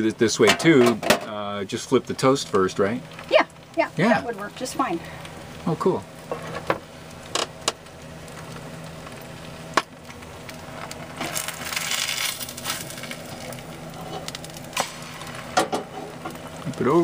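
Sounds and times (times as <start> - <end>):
frying sizzle: 0.0 - 17.0.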